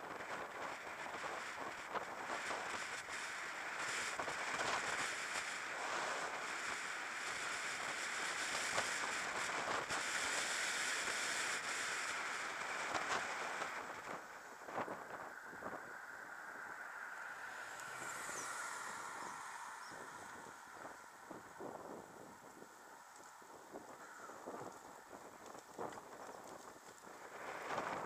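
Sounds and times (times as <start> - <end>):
light clicks and crackles: 0.0 - 15.3, 22.4 - 28.0
road noise: 0.0 - 28.0
wind rushing over microphone: 0.0 - 28.0.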